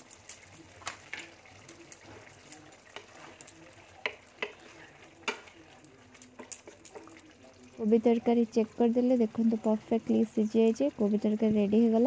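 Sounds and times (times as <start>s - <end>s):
wooden spatula stirring curry: 0.0s - 7.8s
spatula tapping a pan: 2.9s - 7.2s.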